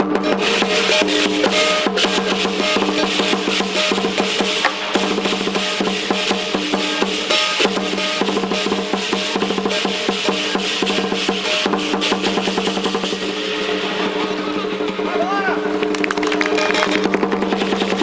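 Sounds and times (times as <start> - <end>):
drums in fast rolls: 0.0 - 18.0
pitched drone: 13.1 - 17.5.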